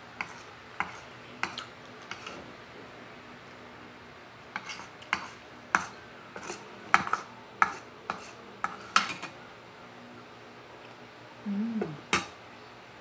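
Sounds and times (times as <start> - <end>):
cutlery clinking on a ceramic plate: 4.6 - 9.4.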